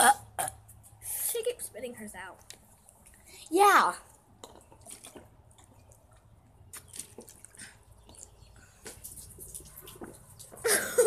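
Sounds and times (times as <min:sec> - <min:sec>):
water dripping: 0:04.1 - 0:11.0
water gulped from plastic bottles: 0:04.3 - 0:11.0
water sloshing: 0:04.4 - 0:11.0.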